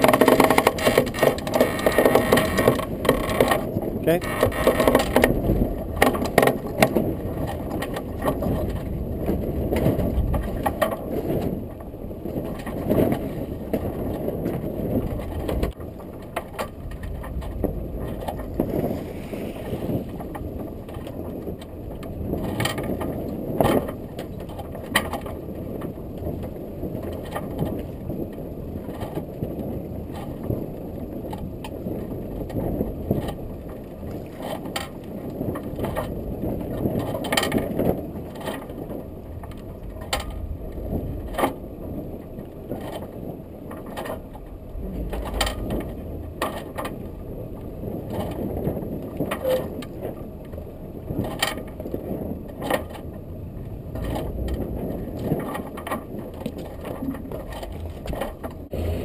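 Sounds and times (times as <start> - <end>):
roller furler clicks: 0.0 - 58.9
rushing of wind and water: 0.0 - 59.0.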